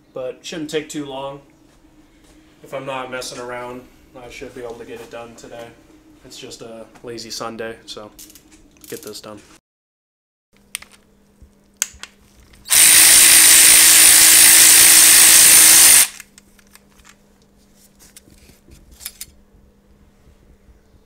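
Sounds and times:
handheld power tool running: 12.7s - 16.2s.

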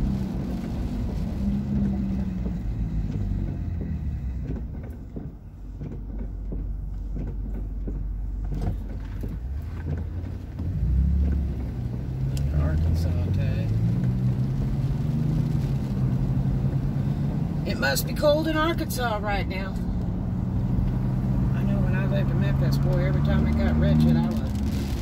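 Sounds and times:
car engine and road rumble: 0.0s - 25.0s
light taps: 0.6s - 12.5s.

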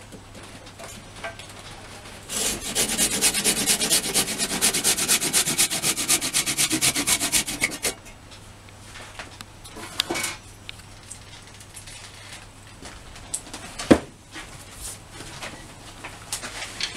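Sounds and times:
hand saw sawing wood: 2.3s - 8.0s.

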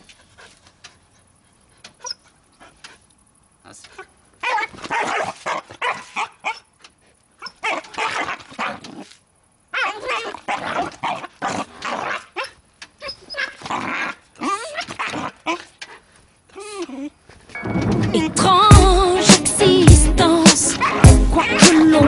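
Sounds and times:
puppy barking and growling: 4.0s - 6.8s, 7.4s - 16.0s, 20.6s - 21.9s.

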